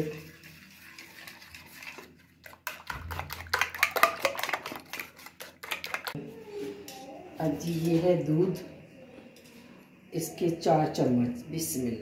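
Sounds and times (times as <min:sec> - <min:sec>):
utensil beating egg on plate: 0:00.0 - 0:06.2.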